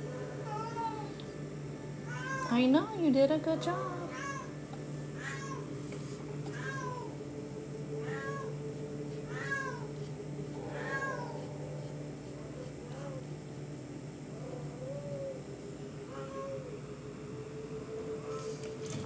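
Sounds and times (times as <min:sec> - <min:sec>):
cat meowing: 0:03.8 - 0:04.5, 0:05.2 - 0:05.6, 0:08.0 - 0:08.5, 0:09.3 - 0:09.9, 0:10.7 - 0:11.5.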